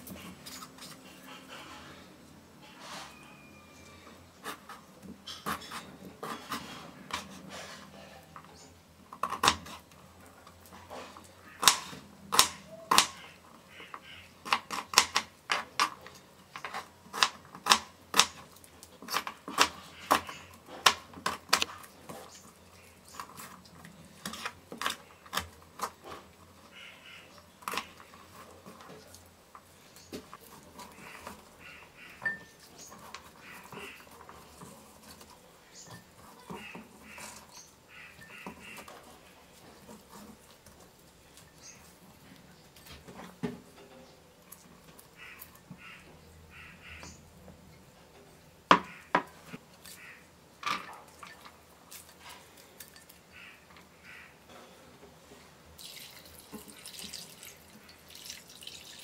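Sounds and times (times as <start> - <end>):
knife scraping on board: 4.4 - 8.2, 24.2 - 26.3.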